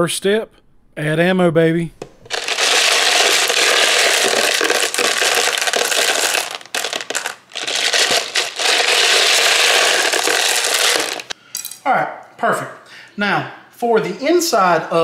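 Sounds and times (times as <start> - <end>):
brass cartridges rattling: 2.3 - 11.4.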